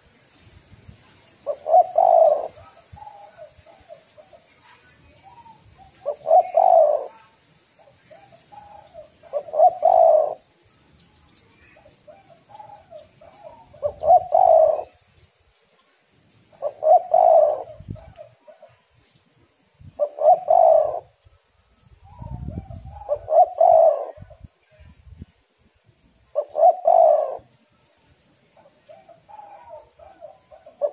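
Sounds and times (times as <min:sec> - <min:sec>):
dove cooing: 0:01.4 - 0:04.6, 0:05.3 - 0:10.5, 0:11.8 - 0:15.0, 0:16.5 - 0:18.8, 0:20.0 - 0:21.2, 0:22.1 - 0:24.4, 0:26.3 - 0:27.6, 0:28.6 - 0:30.9.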